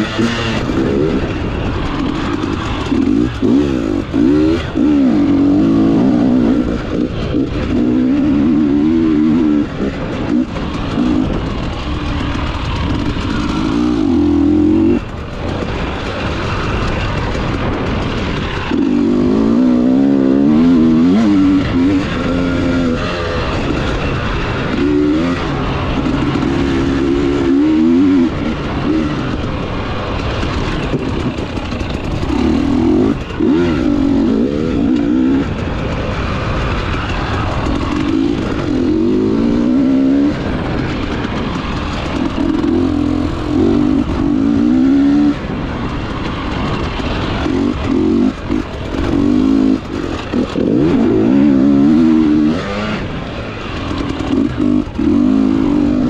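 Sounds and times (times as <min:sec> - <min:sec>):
two-stroke engine revving: 0:00.0 - 0:56.0.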